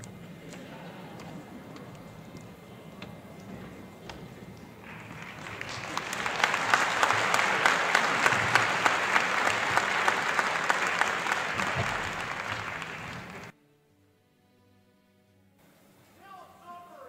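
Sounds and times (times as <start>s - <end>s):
audience applause: 3.3s - 13.5s.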